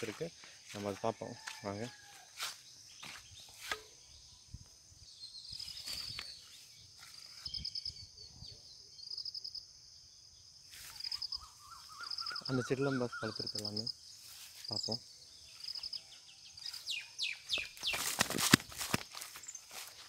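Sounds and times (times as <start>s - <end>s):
footsteps through dry grass: 0.0s - 3.8s, 5.5s - 7.5s, 10.7s - 11.6s, 14.2s - 14.8s, 16.6s - 20.0s
insect chorus: 0.0s - 20.0s.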